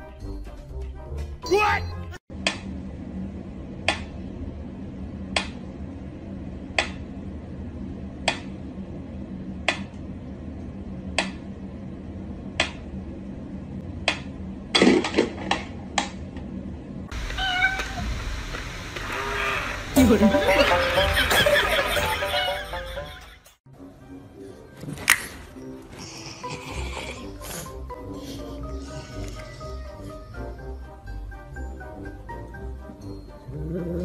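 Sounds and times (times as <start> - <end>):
steady hiss: 17.2 - 20.5.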